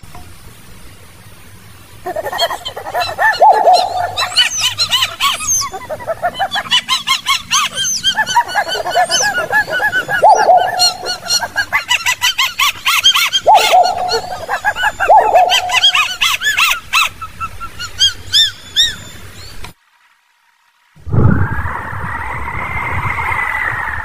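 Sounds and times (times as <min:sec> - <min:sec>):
birds yelping calls: 0:01.9 - 0:19.7.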